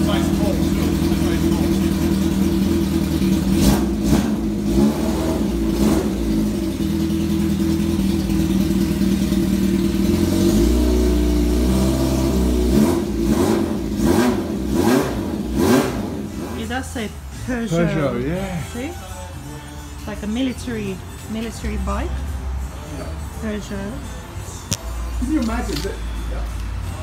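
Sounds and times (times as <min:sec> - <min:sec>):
motorcycle engine running: 0:00.0 - 0:17.2.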